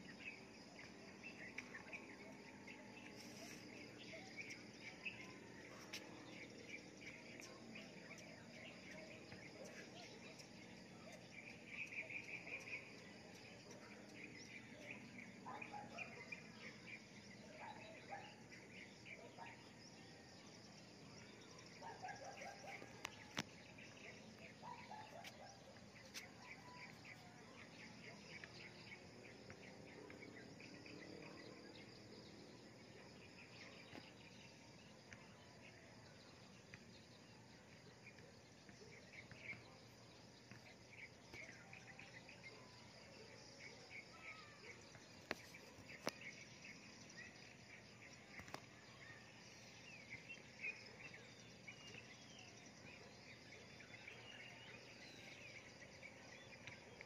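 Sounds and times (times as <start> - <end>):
birds chirping: 0.0 - 57.0
insects trilling: 0.0 - 57.0.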